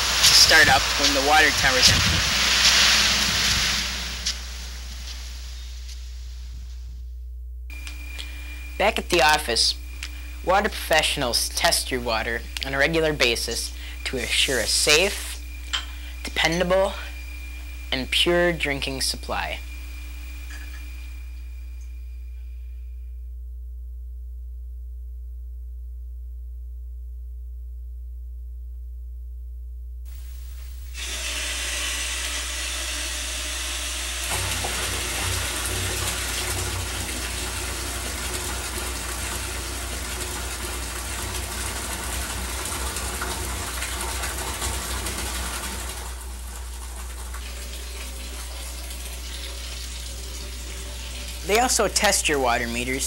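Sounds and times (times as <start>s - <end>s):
water rushing: 0.0s - 5.6s, 31.0s - 53.0s
electrical hum: 0.0s - 53.0s.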